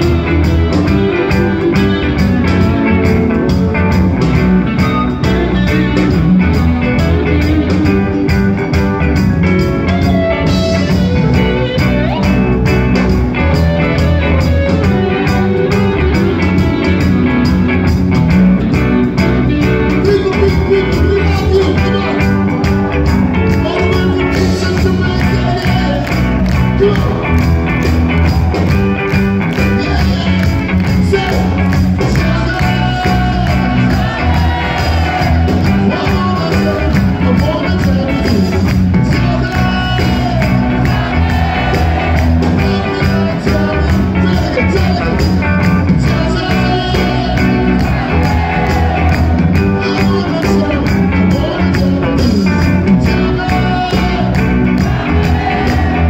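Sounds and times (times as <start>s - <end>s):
heavy bass guitar: 0.0s - 56.0s
reggae band playing: 0.0s - 56.0s
lead vocal singing: 29.6s - 56.0s.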